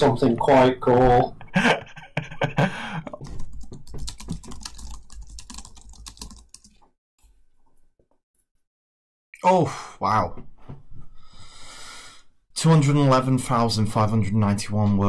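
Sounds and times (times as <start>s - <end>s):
keyboard typing clicks: 3.3s - 6.7s.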